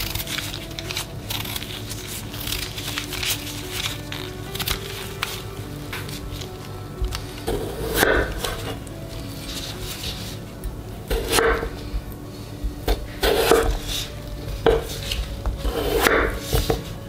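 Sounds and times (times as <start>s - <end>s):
knife slicing potatoes: 12.8s - 17.0s.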